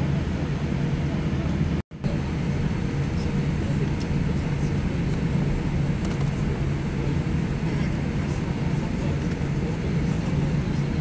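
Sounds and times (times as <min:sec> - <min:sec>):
airplane engine hum and rumble: 0:00.0 - 0:11.0
faint steady whine: 0:00.0 - 0:11.0.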